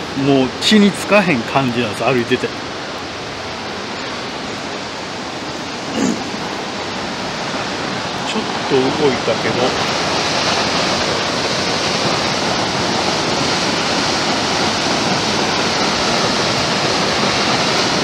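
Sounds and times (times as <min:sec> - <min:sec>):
water pouring and crashing: 0:05.6 - 0:18.0.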